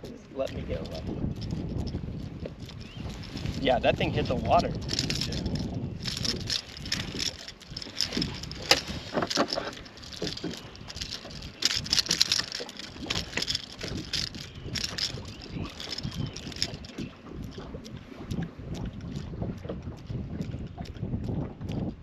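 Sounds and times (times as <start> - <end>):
fishing hooks clicking and rattling: 0.4 - 17.7.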